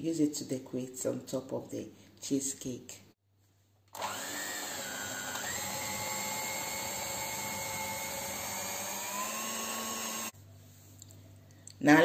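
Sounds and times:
electric hand mixer whining: 4.0s - 10.4s.

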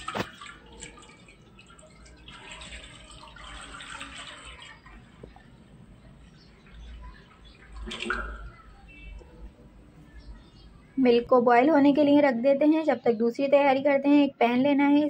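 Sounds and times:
milk pouring into a pan: 0.0s - 5.1s.

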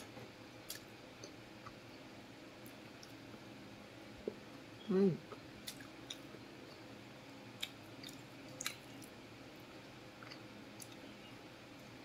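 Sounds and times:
quiet chewing: 0.0s - 3.4s, 5.2s - 7.0s, 7.6s - 12.0s.

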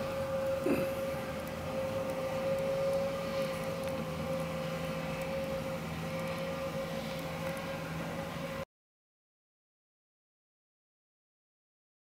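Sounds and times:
vehicle engine running: 0.0s - 8.6s.

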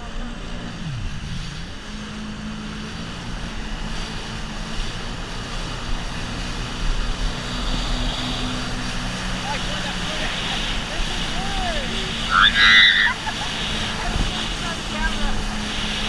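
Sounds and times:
jet ski engine running: 0.0s - 16.0s
wind: 0.0s - 16.0s.

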